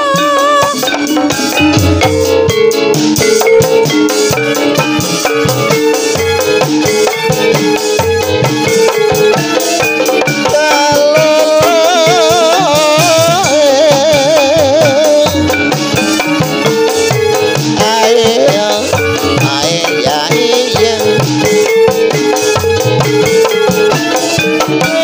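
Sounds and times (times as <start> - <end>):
drums: 0.0 - 25.0
high wavering melody: 0.0 - 25.0
gongs struck: 0.8 - 6.6.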